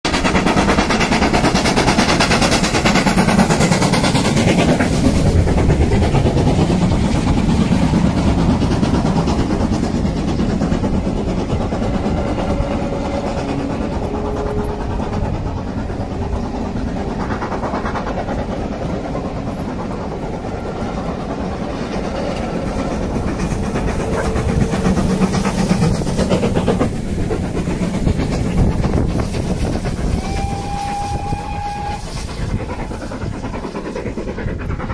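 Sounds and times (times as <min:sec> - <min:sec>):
steam train rumbling past: 0:00.1 - 0:34.9.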